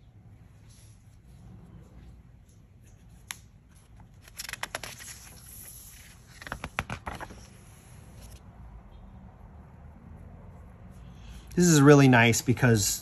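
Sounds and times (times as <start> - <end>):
book pages rustling: 2.8 - 8.4.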